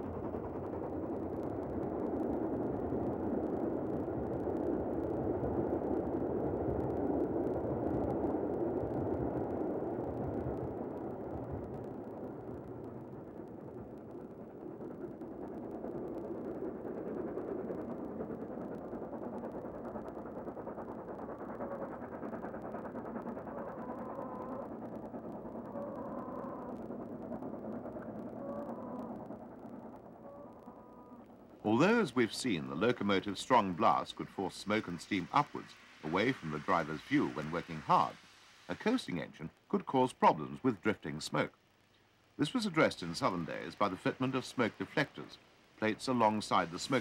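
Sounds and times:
steam locomotive exhaust: 0:11.6 - 0:41.1.

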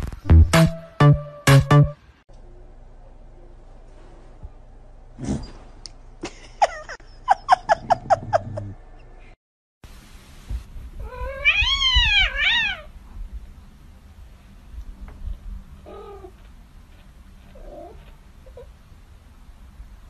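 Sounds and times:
kitten meowing: 0:11.1 - 0:12.9.

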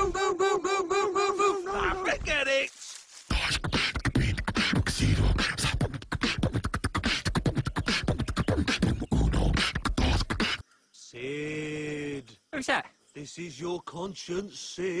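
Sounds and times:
person beatboxing: 0:03.3 - 0:10.6.

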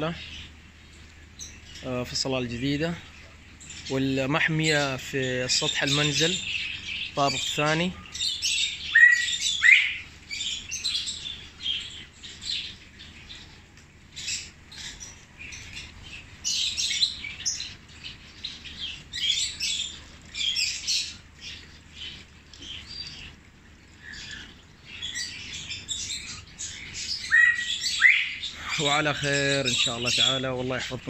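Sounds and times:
small birds chirping: 0:00.0 - 0:31.0
loud rising bird call: 0:08.8 - 0:10.1, 0:27.1 - 0:28.8.

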